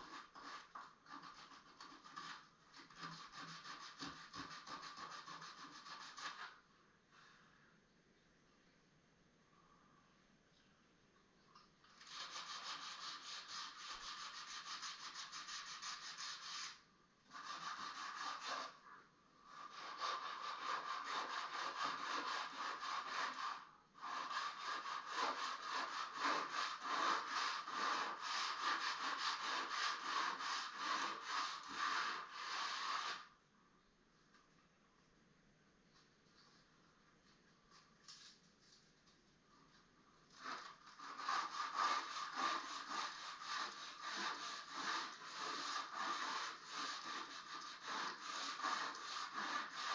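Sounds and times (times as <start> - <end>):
sandpaper sanding wood: 0.0 - 6.5, 12.0 - 18.8, 19.5 - 33.3, 40.4 - 49.9.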